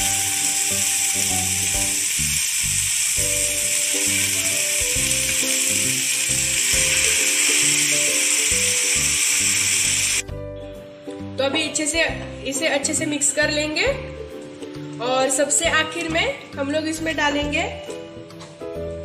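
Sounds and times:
oil sizzling in a frying pan: 0.0 - 10.2
background music: 0.0 - 19.0.

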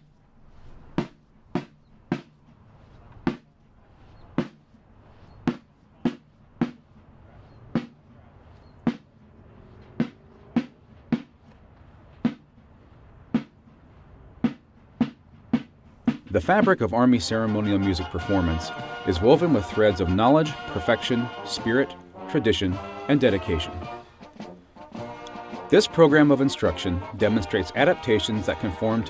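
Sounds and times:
sparse drum strikes: 1.0 - 2.4, 3.2 - 3.5, 4.4 - 4.7, 5.4 - 6.9, 7.7 - 8.0, 8.8 - 9.1, 10.0 - 11.4, 12.2 - 12.6, 13.3 - 13.6, 14.4 - 16.9.

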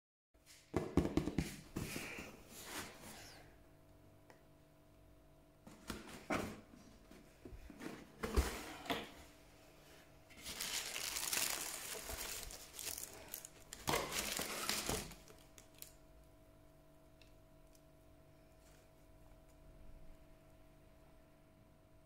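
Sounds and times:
tissue paper rustling: 10.3 - 15.4.

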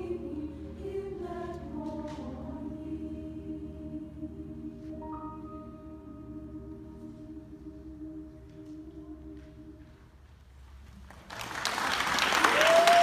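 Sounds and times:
choir singing held chord: 0.0 - 9.8
audience applause: 11.0 - 13.0.

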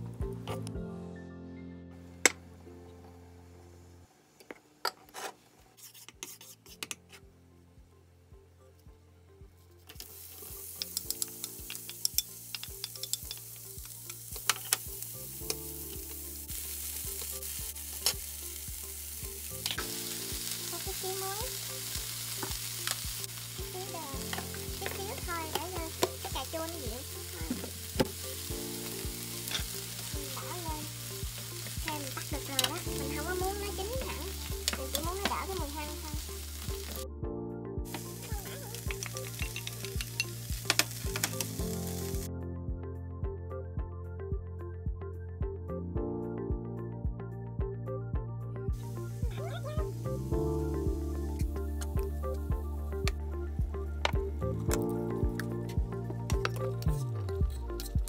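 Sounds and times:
wooden spatula scraping pan: 5.0 - 7.2
onion sizzling in hot oil: 9.9 - 37.0, 37.9 - 42.3, 48.8 - 52.1.

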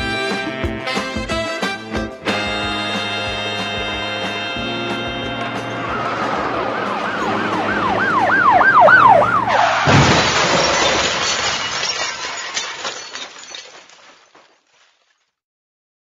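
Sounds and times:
music: 0.0 - 8.8
wailing siren-like tone: 5.4 - 9.9
loud crash with falling debris: 9.5 - 15.3.

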